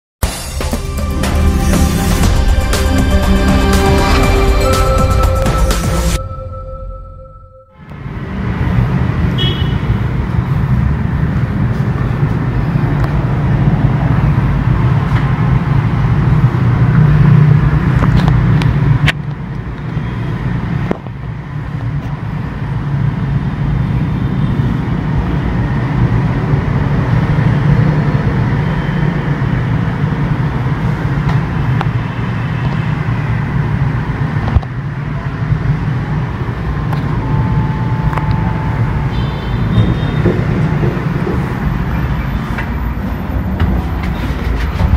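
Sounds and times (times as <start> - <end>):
loud steady low rumble: 0.2 - 8.3, 43.0 - 44.9.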